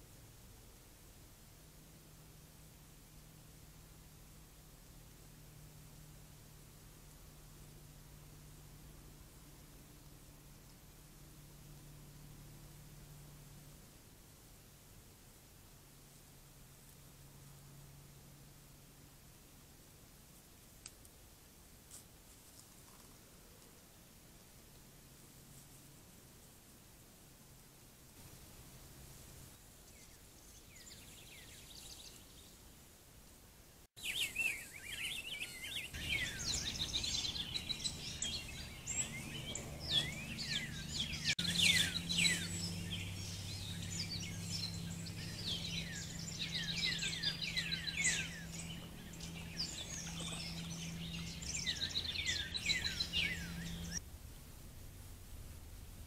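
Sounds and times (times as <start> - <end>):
low steady hum: 0.0 - 56.0
songbirds chirping and trilling: 29.8 - 32.8, 34.0 - 54.0.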